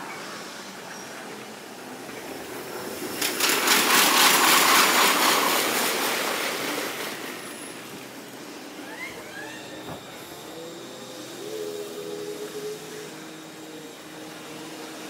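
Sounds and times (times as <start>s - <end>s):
electric train passing: 0.0s - 15.0s
train wheel clatter: 1.9s - 8.6s.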